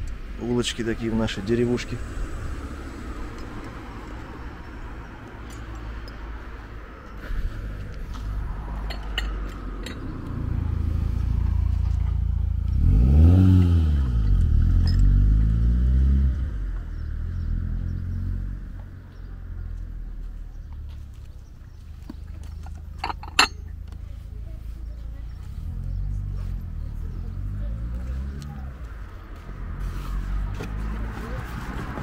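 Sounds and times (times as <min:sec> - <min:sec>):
steady low rumble: 0:00.0 - 0:13.1
car driving past: 0:00.6 - 0:06.8, 0:07.4 - 0:21.1, 0:25.4 - 0:32.0
sharp clinks: 0:14.8 - 0:15.2, 0:22.5 - 0:23.8.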